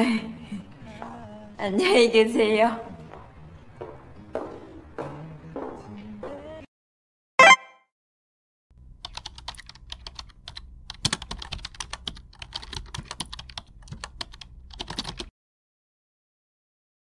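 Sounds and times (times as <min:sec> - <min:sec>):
computer keyboard typing: 0:09.0 - 0:15.3.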